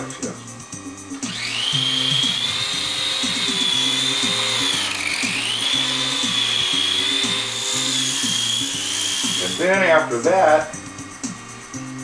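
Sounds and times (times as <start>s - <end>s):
background music with beat: 0.0s - 12.0s
small electric motor whine: 0.0s - 12.0s.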